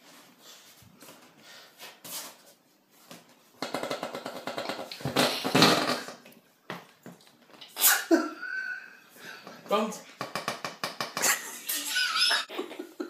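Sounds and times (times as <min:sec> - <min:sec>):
whoopee cushion fart noise: 0:03.6 - 0:06.2.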